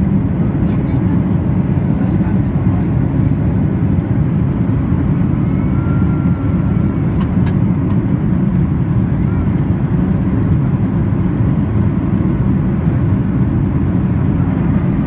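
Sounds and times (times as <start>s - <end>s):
airplane cabin engine roar: 0.0s - 15.0s.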